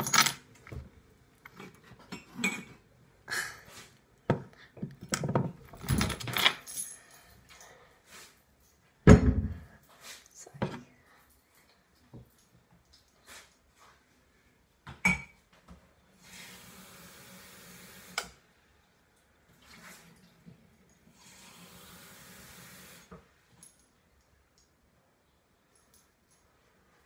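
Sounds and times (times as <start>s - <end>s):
water running: 19.2s - 23.1s.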